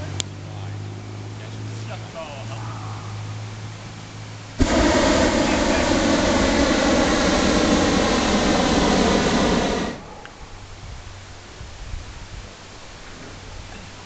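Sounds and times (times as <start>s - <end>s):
propane burner blast: 4.5s - 11.2s.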